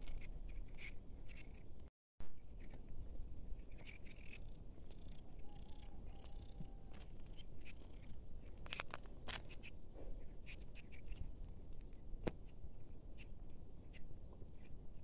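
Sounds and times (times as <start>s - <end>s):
faint clicks and crackles: 3.6s - 12.6s.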